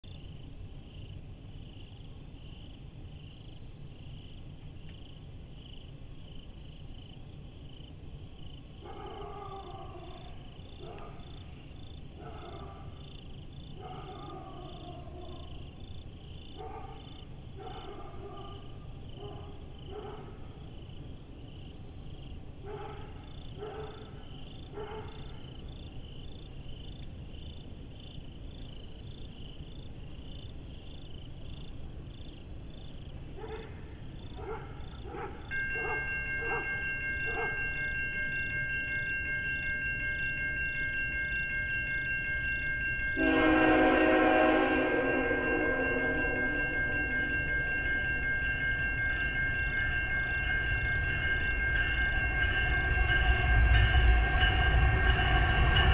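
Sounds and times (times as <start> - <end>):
crossing warning bell ringing: 25.1 - 28.4, 34.9 - 55.9
locomotive air horn: 43.2 - 47.8
steady low rumble: 44.9 - 55.9.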